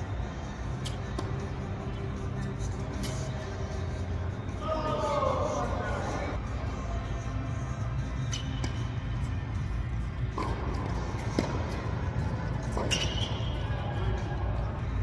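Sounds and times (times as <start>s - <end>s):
low rumble of indoor hall: 0.0s - 15.0s
tennis ball hits and bounces: 0.8s - 1.5s, 10.3s - 13.5s.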